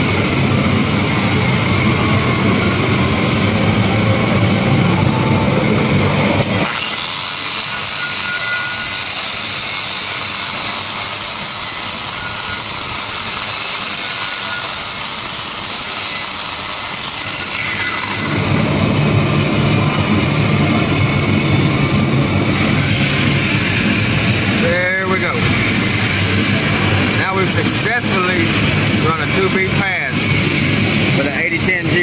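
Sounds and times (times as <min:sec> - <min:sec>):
low engine hum: 0:00.0 - 0:06.4, 0:18.4 - 0:27.2
angle grinder grinding steel: 0:06.0 - 0:18.8, 0:19.6 - 0:32.0.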